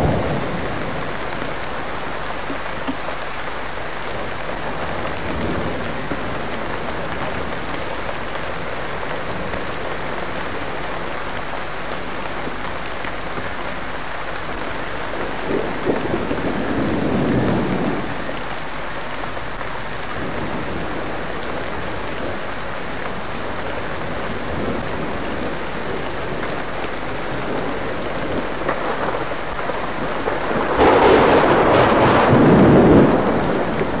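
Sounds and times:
thunder rumbling: 0.0 - 1.8, 14.6 - 18.4, 24.2 - 34.0
steady rain falling: 0.0 - 34.0.

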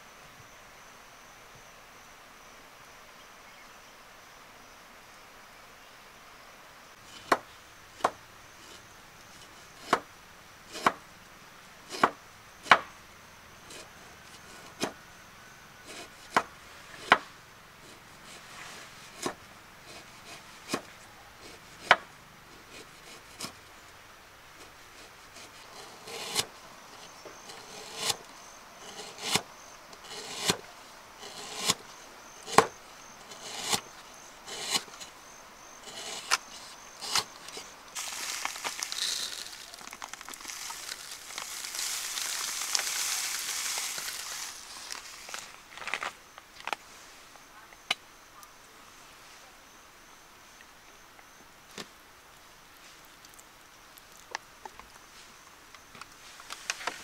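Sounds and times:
rough hissing scrape: 7.0 - 11.0, 15.8 - 23.7, 24.5 - 47.3
blade chopping bamboo: 9.8 - 10.1, 10.7 - 11.0, 11.9 - 12.9, 15.9 - 17.3, 25.4 - 28.2, 28.8 - 30.6, 31.2 - 31.8, 32.4 - 33.9, 34.5 - 35.0, 35.9 - 45.0.

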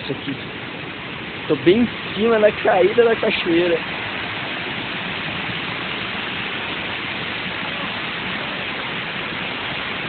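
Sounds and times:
waterfall pouring over rock: 0.0 - 10.0.

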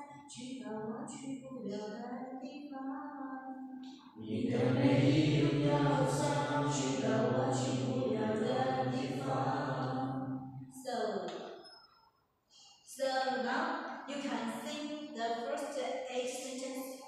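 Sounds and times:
students chanting in unison: 4.2 - 10.6.

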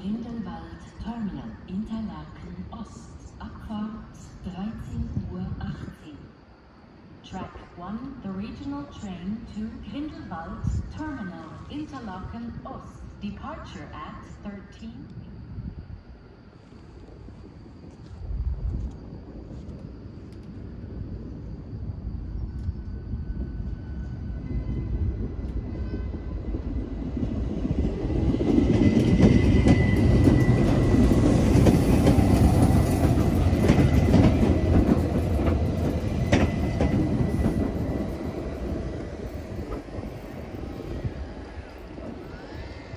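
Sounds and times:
train wheels rumbling on rails: 17.0 - 42.9.

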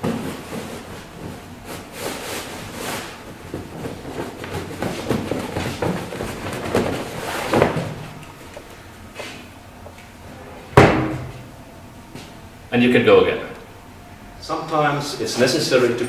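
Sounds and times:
fabric rustling: 0.3 - 8.5.

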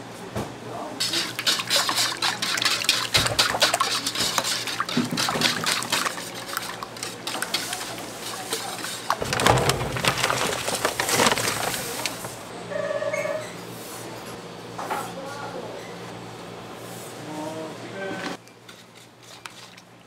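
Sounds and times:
kitchen utensils clicking: 1.2 - 12.5
liquid sloshing and pouring: 1.2 - 12.5.

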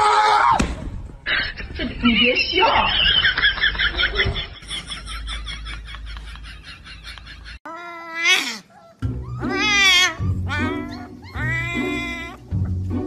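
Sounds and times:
puppy crying: 7.6 - 12.8.

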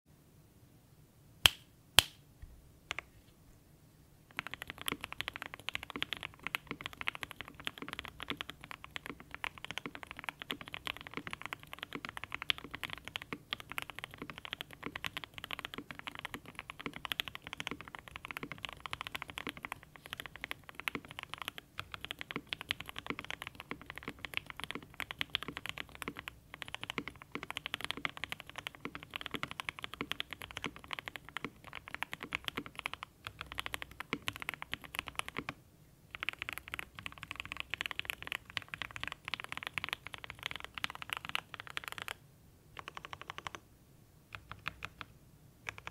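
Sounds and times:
fast mechanical keyboard typing: 4.3 - 42.2, 42.8 - 43.6, 44.3 - 45.1, 45.7 - 45.9.

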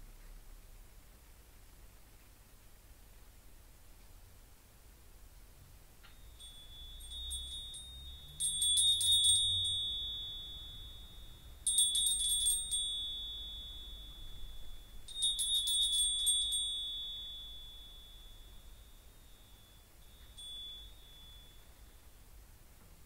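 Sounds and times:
small metal bell jingling: 6.1 - 22.3.

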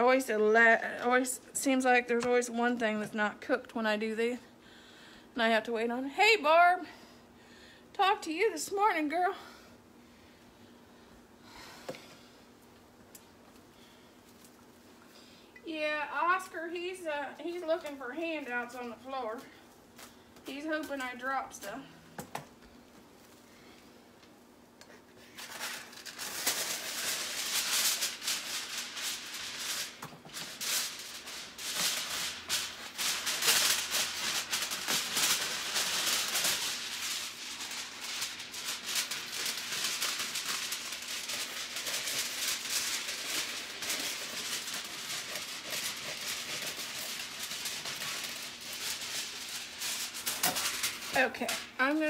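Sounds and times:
plastic bag and foil crinkling: 16.2 - 21.9, 24.9 - 52.0.

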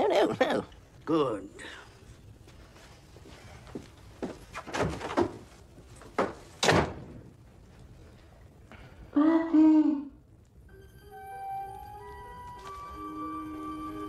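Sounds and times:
door shutting: 6.2 - 7.1.

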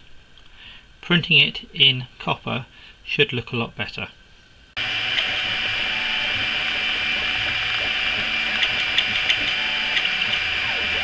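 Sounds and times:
printer whirring with high whine: 4.8 - 11.0.

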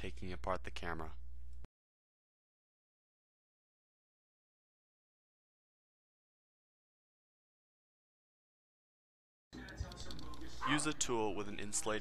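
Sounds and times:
low steady hum: 0.0 - 1.7
person narrating: 9.6 - 12.0.

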